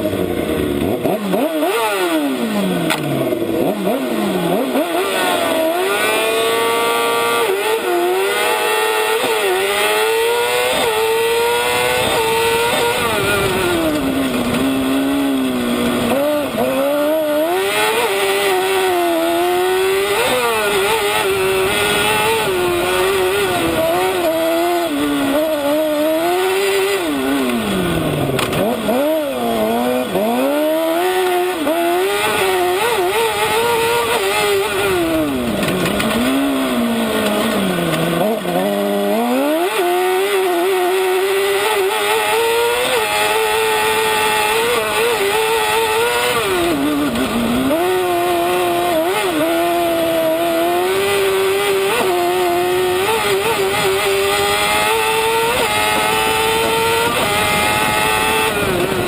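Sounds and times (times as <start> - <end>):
buggy engine revving: 0.0 - 59.0.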